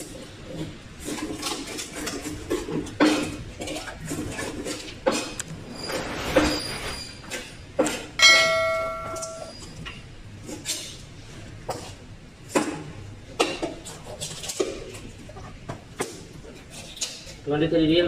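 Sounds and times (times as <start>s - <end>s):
metallic ring: 8.2s - 9.7s.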